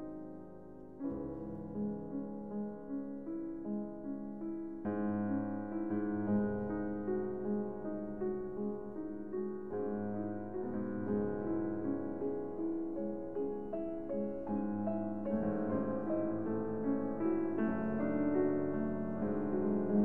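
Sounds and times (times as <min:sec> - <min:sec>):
instrumental piano music: 0:00.0 - 0:20.0.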